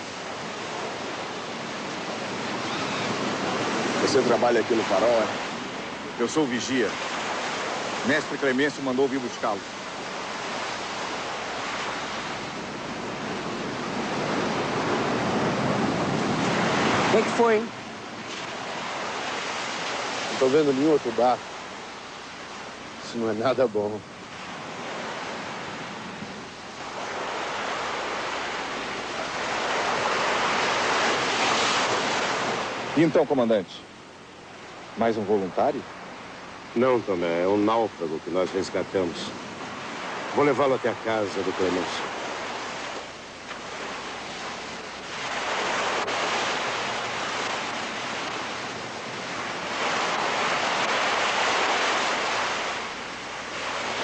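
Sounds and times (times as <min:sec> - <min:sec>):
waves washing on rocky shore: 0:00.0 - 0:23.6, 0:39.0 - 0:54.0.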